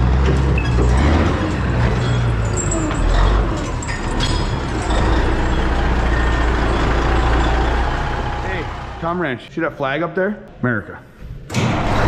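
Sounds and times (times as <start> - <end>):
diesel truck engine idling: 1.6 - 9.4.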